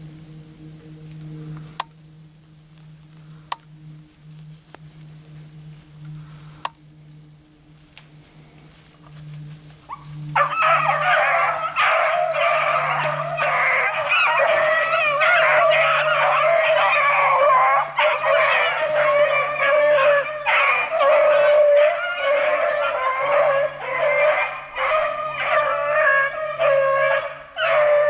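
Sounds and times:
hounds baying: 9.9 - 28.0.

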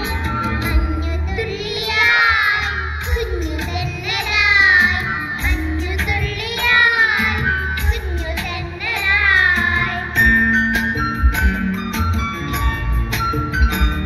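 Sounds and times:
children singing into microphones: 0.0 - 10.5
instrumental backing with bass line: 0.0 - 14.0.

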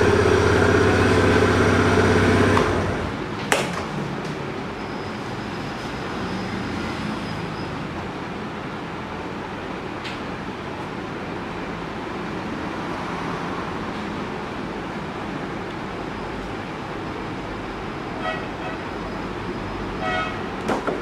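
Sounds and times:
scooter engine idling: 0.0 - 3.1.

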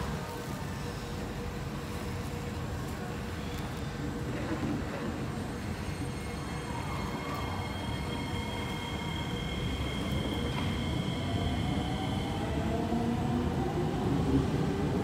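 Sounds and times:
electric train pulling away: 5.3 - 15.0
train whine rising in pitch: 5.8 - 14.3.

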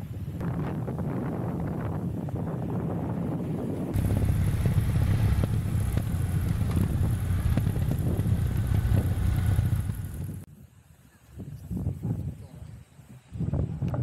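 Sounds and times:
wind buffeting microphone: 0.0 - 10.5, 11.3 - 14.0
motorcycle engine running: 4.0 - 10.4
low rumble: 4.0 - 10.5.

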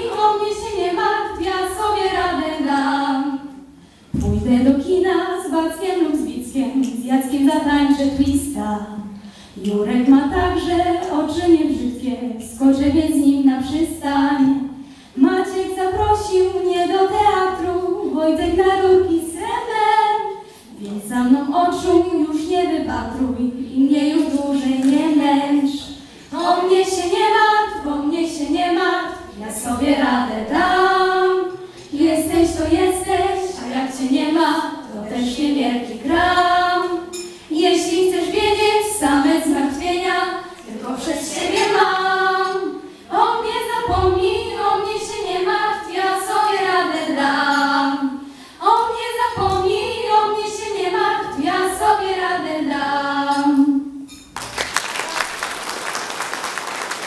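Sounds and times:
girls singing into microphones: 0.0 - 54.4
audience applause: 54.4 - 57.0.

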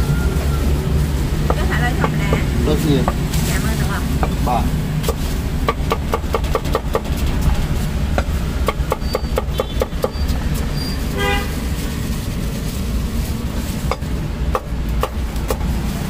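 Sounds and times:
low rumble of traffic: 0.0 - 16.0
vehicle horn toot: 9.0 - 11.7.

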